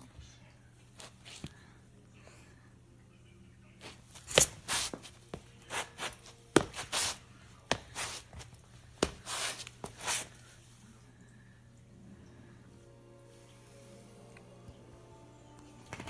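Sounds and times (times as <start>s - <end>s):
shoe stomping on concrete: 4.2s - 10.0s.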